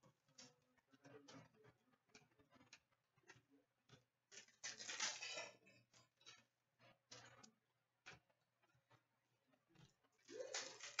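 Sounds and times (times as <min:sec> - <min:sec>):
trading cards rustling: 0:10.3 - 0:11.0.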